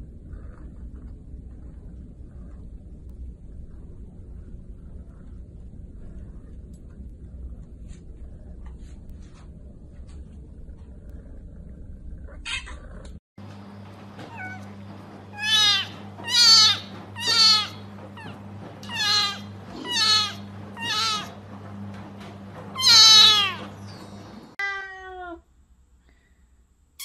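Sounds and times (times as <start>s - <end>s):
steady low hum: 0.0s - 24.6s.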